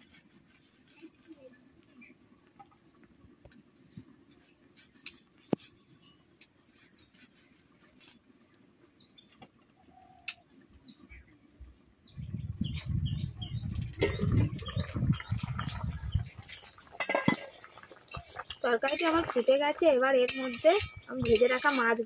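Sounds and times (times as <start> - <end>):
small birds chirping: 4.3 - 5.0, 5.7 - 7.6, 8.8 - 22.0
low rumbling noise: 12.1 - 17.7.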